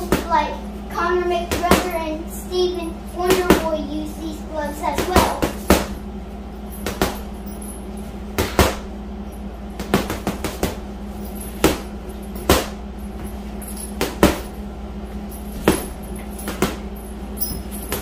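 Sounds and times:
steady low hum: 0.0 - 18.0
gloves punching heavy bag: 4.9 - 6.0, 6.8 - 7.4, 8.3 - 8.9, 9.7 - 10.9, 11.5 - 14.6, 15.5 - 18.0.

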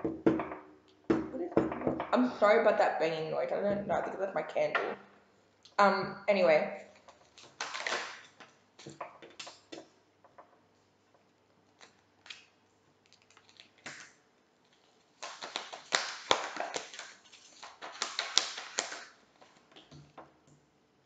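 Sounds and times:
cards being shuffled: 7.0 - 9.6, 13.1 - 19.9.

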